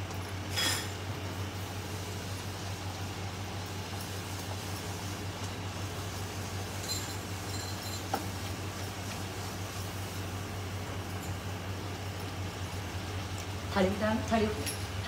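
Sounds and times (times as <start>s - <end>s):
oil sizzling: 0.0s - 15.0s.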